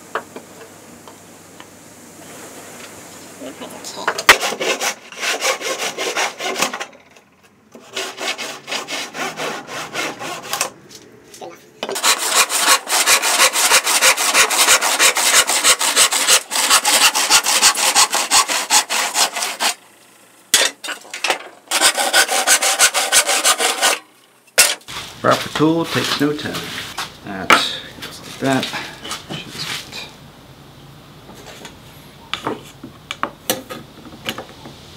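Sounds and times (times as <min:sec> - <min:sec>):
handsaw cutting wood: 0:04.1 - 0:07.0, 0:07.8 - 0:10.8, 0:11.8 - 0:19.8, 0:21.7 - 0:24.0.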